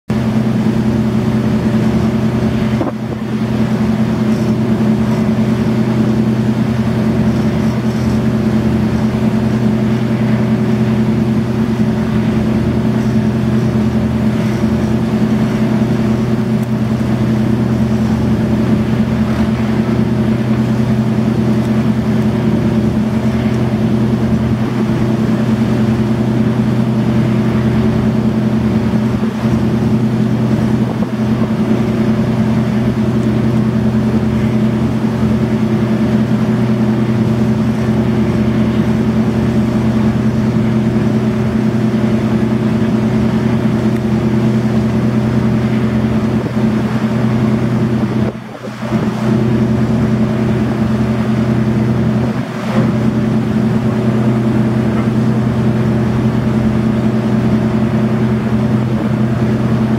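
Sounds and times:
marine diesel engine drone: 0.1 - 59.9.

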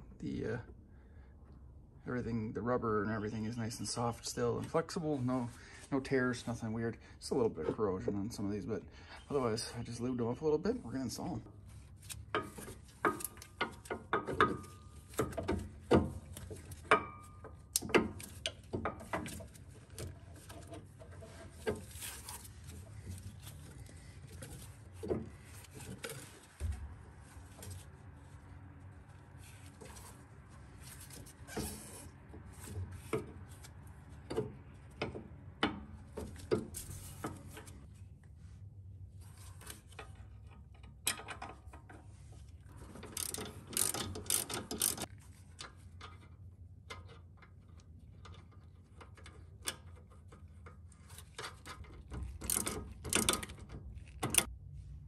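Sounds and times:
wrench clicking: 43.1 - 45.1, 52.4 - 54.5.

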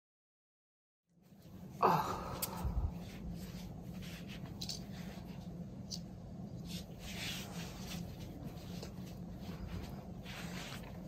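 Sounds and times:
steady low hum: 1.1 - 11.0
skin rubbing on massage roller: 6.6 - 11.0.

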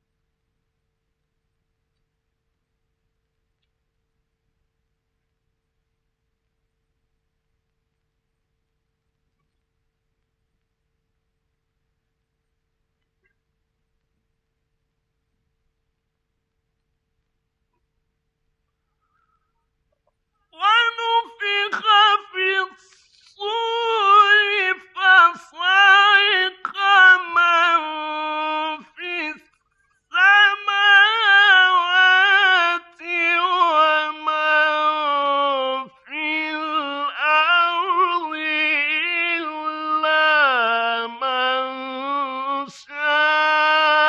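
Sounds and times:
man chanting melodically: 20.6 - 29.5, 30.1 - 44.0.

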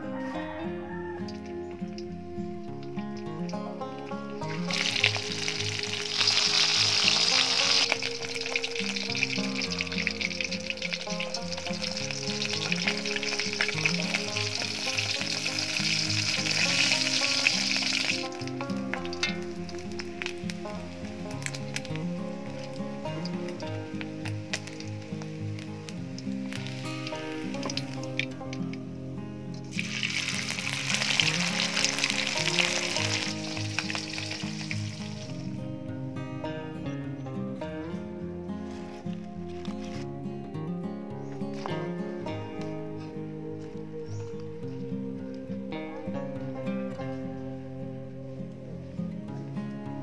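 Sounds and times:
background music: 0.0 - 50.0
fish sizzling in hot oil: 4.6 - 28.4, 29.6 - 35.5.

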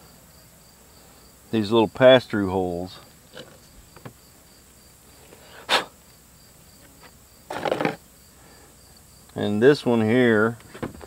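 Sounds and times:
insects chirping: 0.0 - 11.0
rustling scrape: 7.0 - 8.0.

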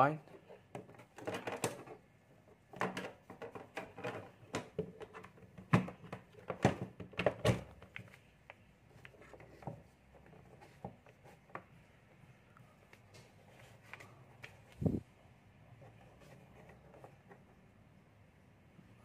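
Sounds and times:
cord and wires rustling on paper: 12.8 - 15.0.

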